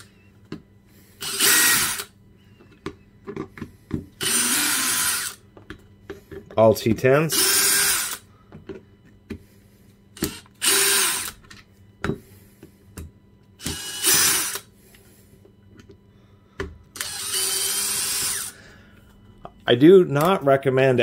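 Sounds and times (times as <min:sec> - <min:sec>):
cordless drill running: 0:01.2 - 0:02.1, 0:04.2 - 0:05.4, 0:07.3 - 0:08.3, 0:10.2 - 0:11.4, 0:13.6 - 0:14.7, 0:17.0 - 0:18.6.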